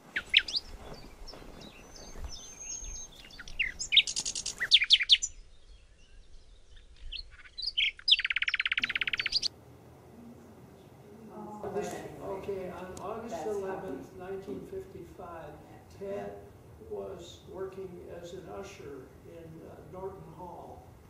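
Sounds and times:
songbirds singing and calling: 0:00.0 - 0:09.5.

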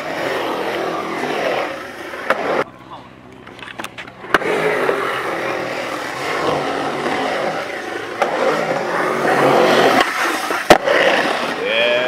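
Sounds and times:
skateboard wheels rolling on concrete: 0:00.0 - 0:12.0.

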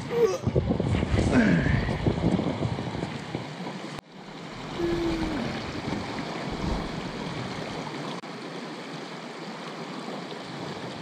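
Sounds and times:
creek water rushing over rocks: 0:01.8 - 0:11.0
low microphone rumble: 0:04.5 - 0:07.8.

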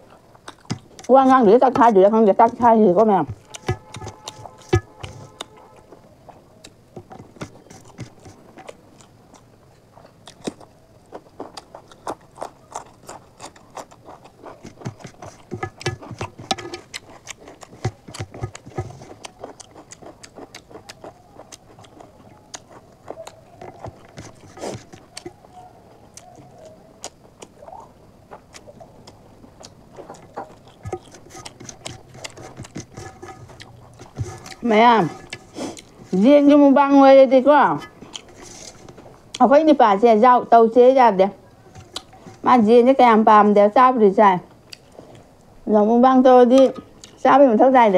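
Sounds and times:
wet chewing smacks: 0:00.0 - 0:01.1, 0:03.4 - 0:36.2, 0:38.0 - 0:39.5, 0:41.8 - 0:42.4.

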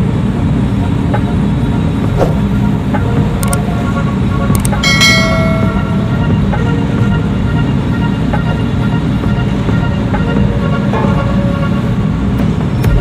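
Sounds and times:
ship diesel engine drone: 0:00.0 - 0:13.0
click: 0:03.4 - 0:03.6, 0:04.5 - 0:04.8
short ringing chime: 0:04.8 - 0:06.4.

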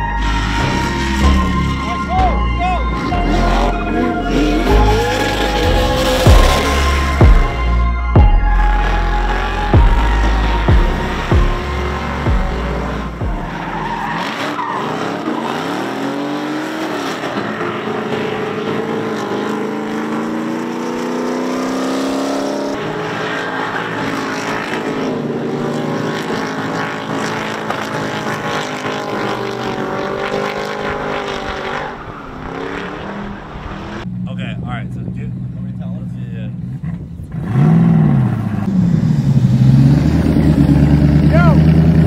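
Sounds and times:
tyres squealing and skidding: 0:00.0 - 0:07.6, 0:08.5 - 0:34.0
car engine revving: 0:00.0 - 0:42.0.

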